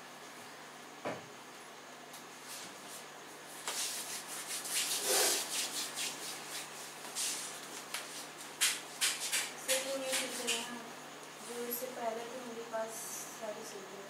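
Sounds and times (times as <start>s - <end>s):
rubbing and rustling near microphone: 2.4s - 10.7s.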